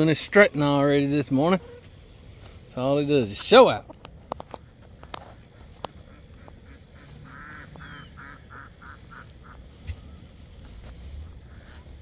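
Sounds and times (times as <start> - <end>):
poultry quacking: 5.4 - 12.0.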